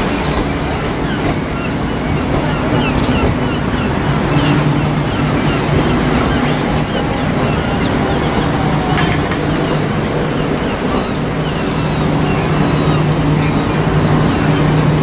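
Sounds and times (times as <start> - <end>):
electric train traction hum: 0.0 - 15.0
train wheels rumbling on track: 0.0 - 15.0.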